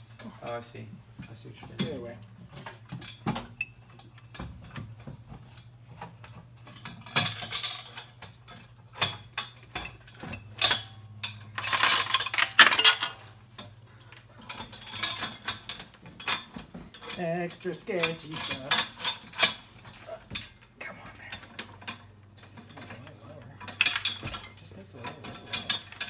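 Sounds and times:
metal clinks and rattles: 1.2 - 26.0
scraping rattle: 5.5 - 17.4.

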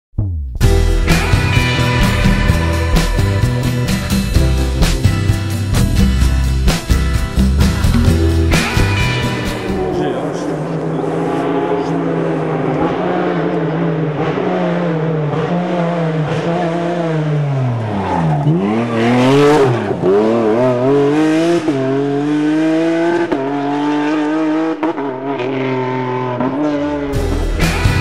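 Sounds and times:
racing car engine: 0.6 - 28.0.

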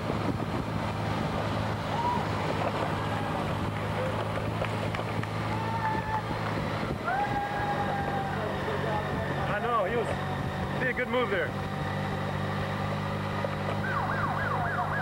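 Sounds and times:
wind: 0.0 - 15.0.

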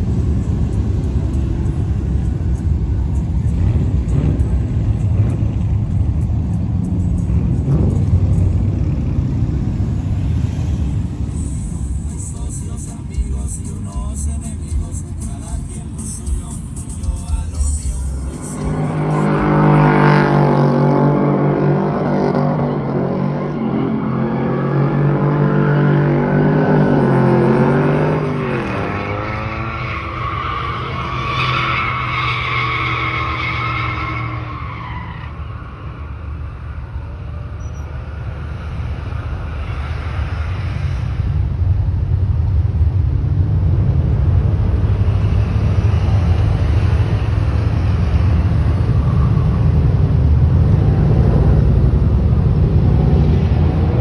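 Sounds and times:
deep engine rumble: 0.0 - 23.9, 35.5 - 54.0
tires squealing: 0.0 - 41.4, 44.5 - 54.0
engine revving high: 18.0 - 32.0.

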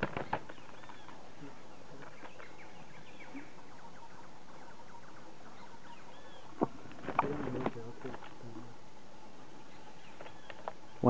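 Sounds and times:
wing flaps: 0.0 - 3.6, 6.5 - 8.6
steady background hiss: 0.0 - 11.0
whistled bird calls: 0.2 - 6.6.

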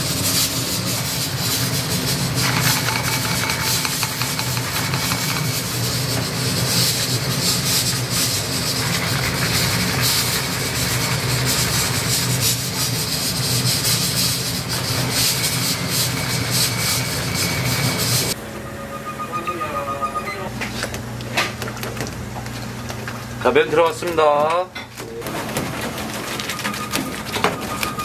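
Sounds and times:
liquid churning: 0.8 - 18.4.

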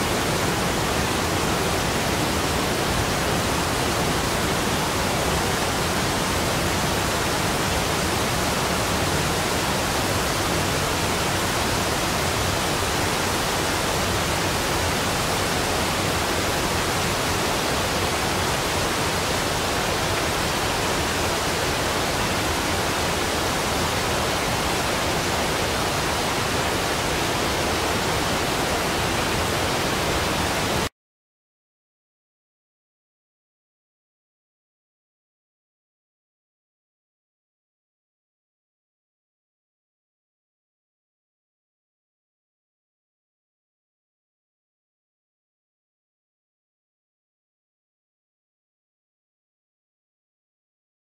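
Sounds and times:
rushing water and spray: 0.0 - 30.9.

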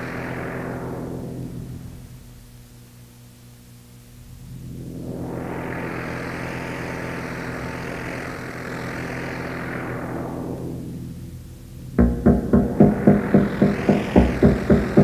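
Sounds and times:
noisy electronic sweep: 0.0 - 2.5, 4.2 - 15.0
steady low drone: 0.0 - 15.0
heavy electronic beat: 11.9 - 15.0.

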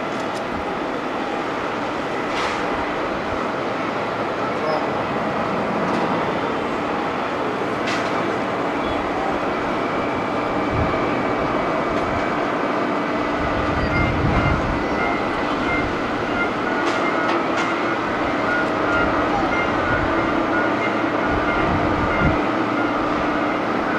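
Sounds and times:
faint engine whine: 0.0 - 23.9
jet engines rumbling: 0.0 - 23.9.

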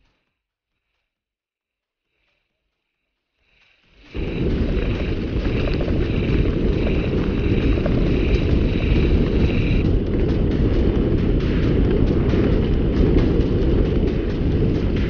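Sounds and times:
bike tyres rumbling over dirt: 4.0 - 15.0
wind buffeting camera: 4.1 - 15.0.

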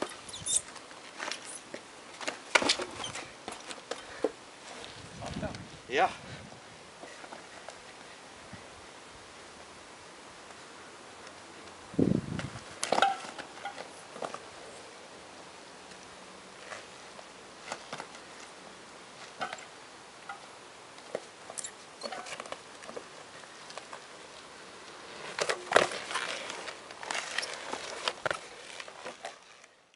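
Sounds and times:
unicycle clicks and scuffs: 0.0 - 5.7, 11.2 - 14.8, 15.9 - 29.9.

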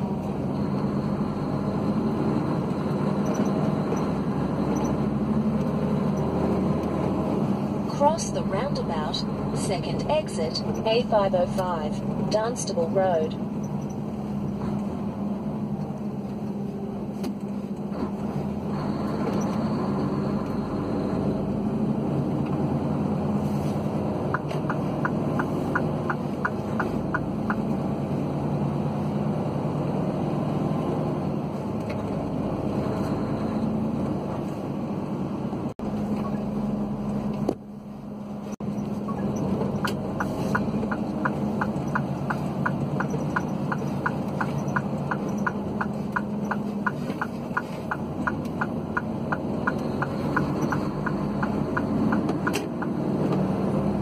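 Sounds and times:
car engine and road noise: 0.0 - 54.0
turn indicator ticking: 24.2 - 27.8, 38.6 - 53.5.

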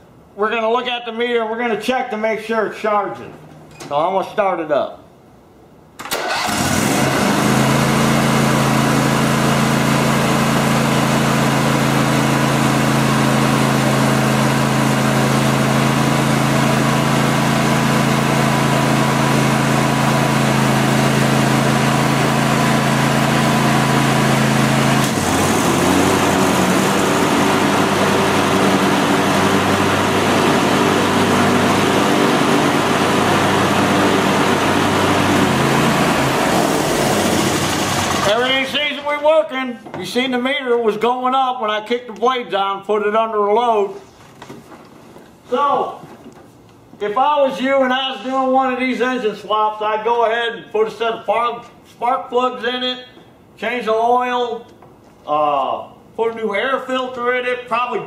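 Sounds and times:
lawn tractor engine running: 6.0 - 39.2
mower blades engaged: 24.9 - 27.7, 36.2 - 38.5.

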